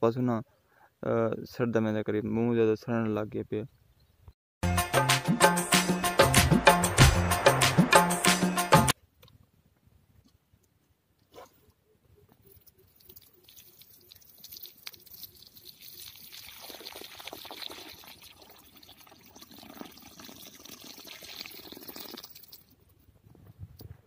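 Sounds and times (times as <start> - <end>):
water pouring onto soil: 12.6 - 22.8.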